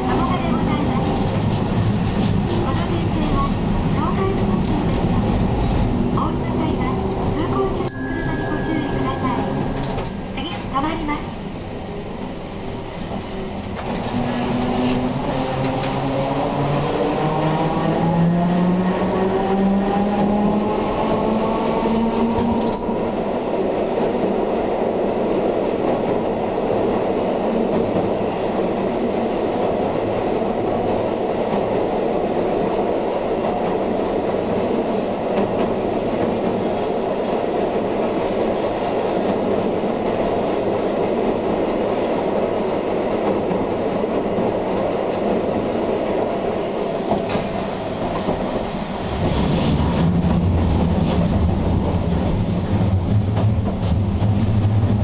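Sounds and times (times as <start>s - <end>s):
streetcar wheels and motors rumbling: 0.0s - 55.0s
rail clicks: 0.1s - 11.2s, 12.6s - 17.0s, 20.2s - 24.4s, 32.6s - 55.0s.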